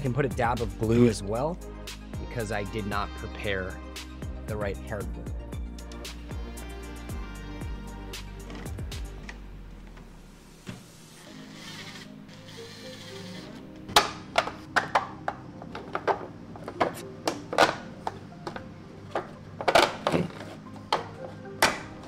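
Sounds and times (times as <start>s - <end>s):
background music: 0.0s - 22.0s
plastic parts clicking together: 13.8s - 21.9s.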